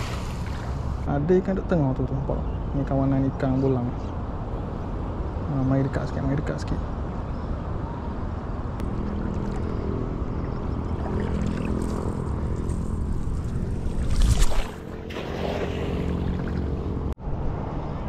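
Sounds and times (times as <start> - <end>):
boat motor running: 8.8 - 17.1.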